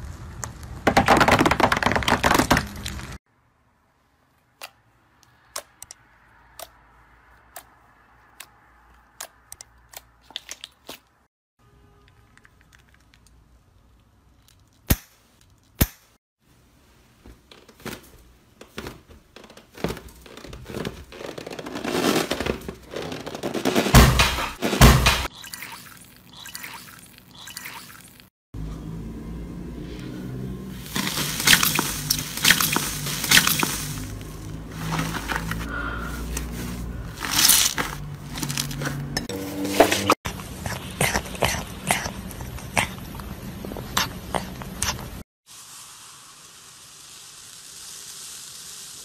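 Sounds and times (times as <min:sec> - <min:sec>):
tyre crunching small balls: 0:00.0 - 0:03.2, 0:19.7 - 0:24.0, 0:30.8 - 0:40.8
slime squelching by hand: 0:25.3 - 0:28.2, 0:30.8 - 0:45.2.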